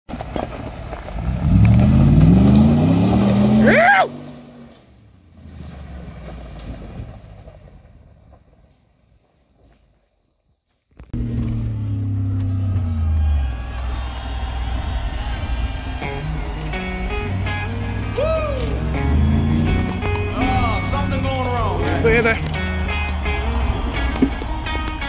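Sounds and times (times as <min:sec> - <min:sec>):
truck engine revving: 0:01.0 - 0:07.6, 0:11.2 - 0:25.0
high rising and falling whoop: 0:02.1 - 0:04.2, 0:11.7 - 0:25.0.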